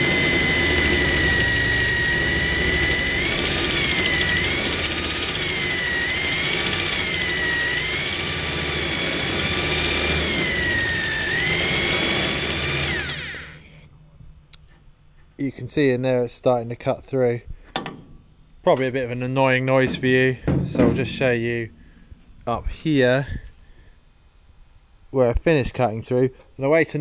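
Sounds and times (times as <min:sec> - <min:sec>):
electric drill cutting steel: 0:00.0 - 0:13.8.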